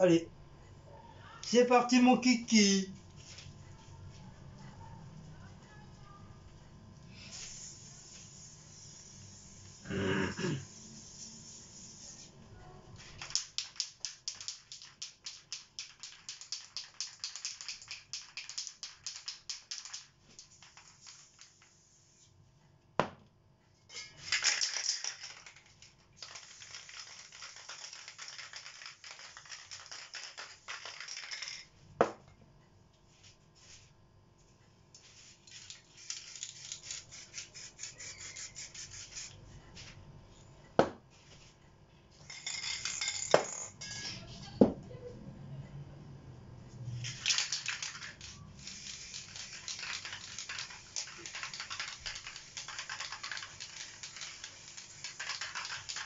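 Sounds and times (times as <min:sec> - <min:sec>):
spray paint cans hissing: 0:07.1 - 0:12.4, 0:13.0 - 0:22.3, 0:24.2 - 0:31.6, 0:35.0 - 0:39.9, 0:46.9 - 0:56.0.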